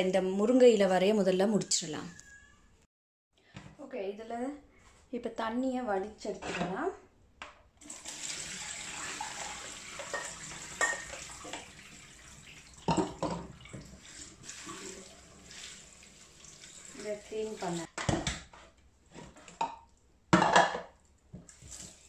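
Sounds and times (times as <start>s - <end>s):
water pouring and splashing into sink: 7.8s - 17.9s, 21.4s - 22.0s.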